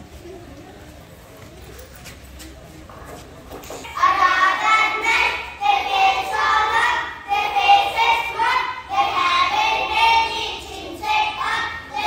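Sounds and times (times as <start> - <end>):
young children singing together: 3.9 - 12.0.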